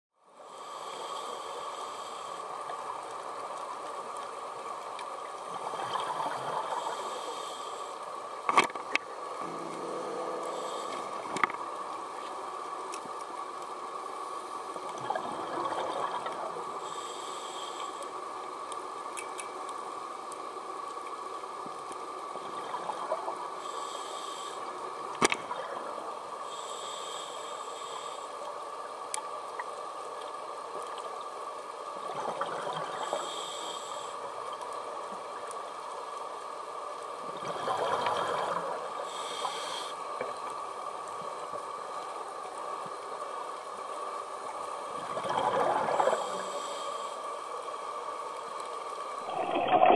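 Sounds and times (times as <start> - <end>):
steady underwater hum: 0.2 - 49.9
diver breathing through regulator: 9.4 - 11.7, 37.9 - 40.0.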